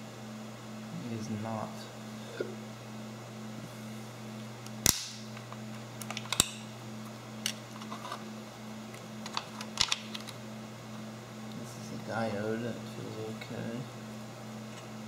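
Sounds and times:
low steady hum: 0.0 - 15.0
sharp clicks of small parts: 4.8 - 5.2.

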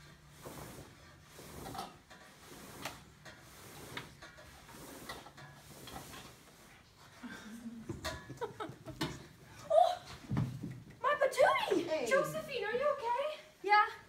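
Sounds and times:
backdrop knocks and scrapes: 0.0 - 7.1.

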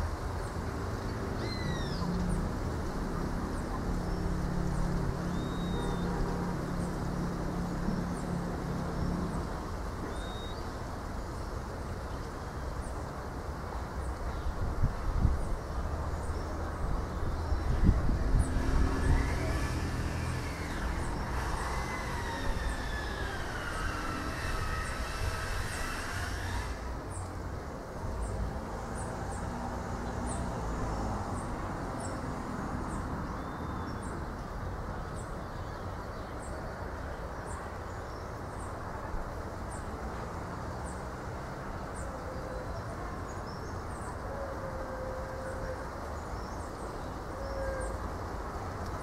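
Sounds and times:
wind rumbling on microphone: 0.0 - 49.0
faint high chirp: 5.3 - 6.1
wavering whistling tones: 18.8 - 26.8.

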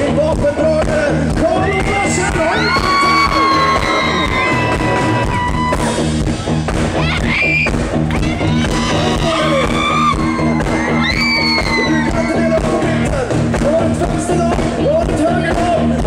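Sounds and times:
rock band playing: 0.0 - 16.0
whoops and screams: 2.4 - 6.0, 7.0 - 12.5.

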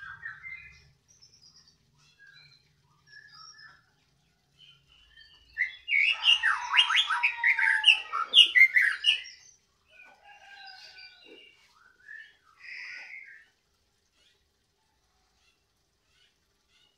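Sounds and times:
bird singing whistled phrases: 5.0 - 9.4.

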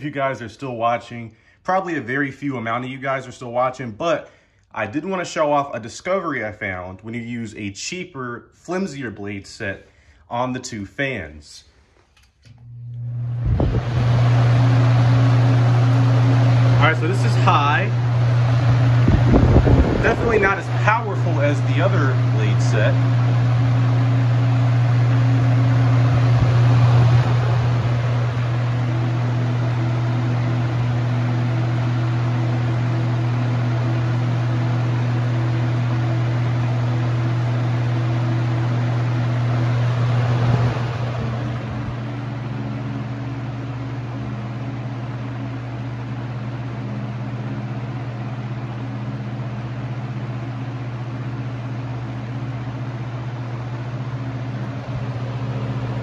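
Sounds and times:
fan air rushing: 8.8 - 56.0
low motor hum: 12.4 - 56.0.

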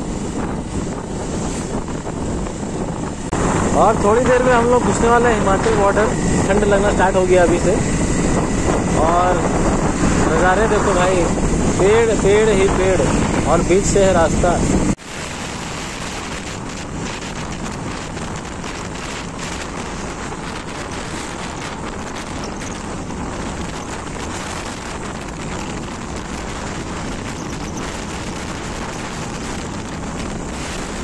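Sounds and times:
road noise: 0.0 - 31.0
wind buffeting microphone: 0.0 - 31.0
motorcycle engine: 14.8 - 31.0.

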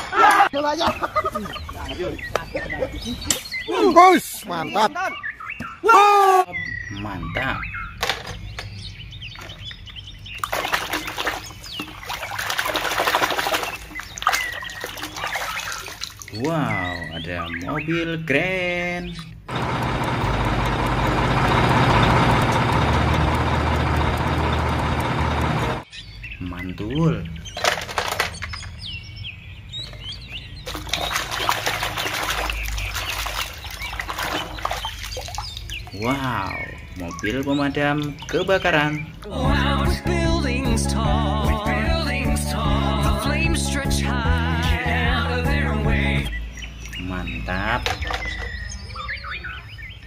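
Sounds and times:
bird chirps: 0.6 - 18.3, 25.8 - 39.2, 46.2 - 50.0
hand splashing through thick mud: 10.4 - 16.4, 30.7 - 35.8
plastic toys clicking: 27.6 - 28.7.

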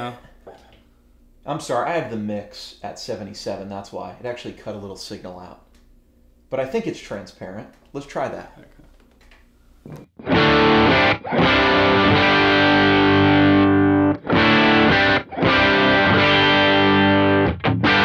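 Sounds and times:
electric guitar chords strummed: 10.2 - 18.0.

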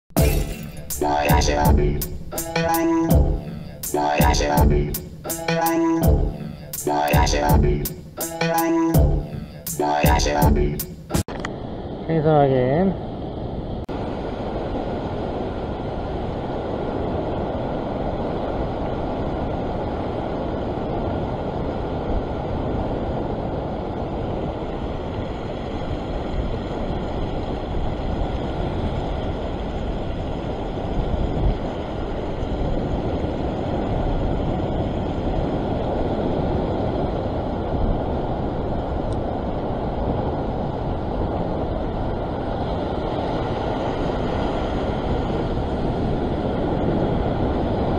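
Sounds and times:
surf washing over rocks: 13.9 - 47.9.

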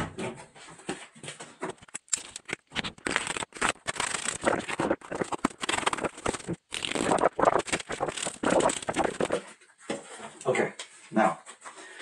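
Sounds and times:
cardboard rubbing on plastic: 2.5 - 9.5.

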